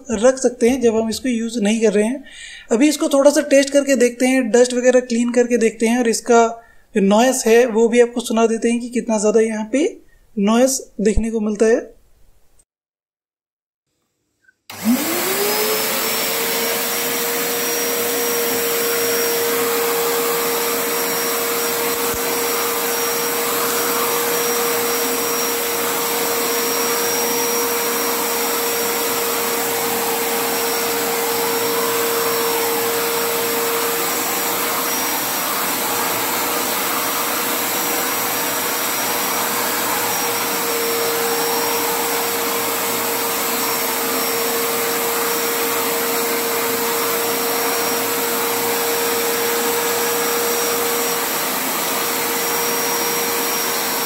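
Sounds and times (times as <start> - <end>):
vacuum cleaner motor whining: 14.7 - 54.0.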